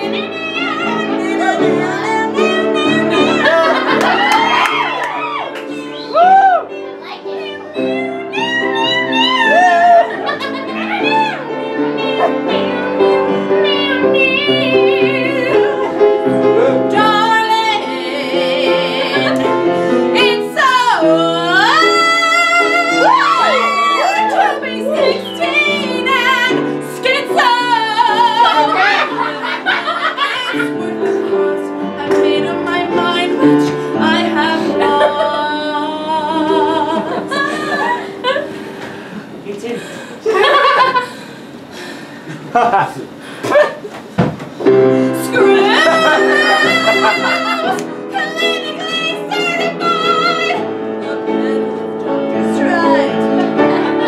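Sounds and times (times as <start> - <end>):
woman singing with vibrato: 0.0 - 6.7, 7.4 - 38.7, 44.7 - 54.0
instrumental accompaniment chords: 0.0 - 39.4.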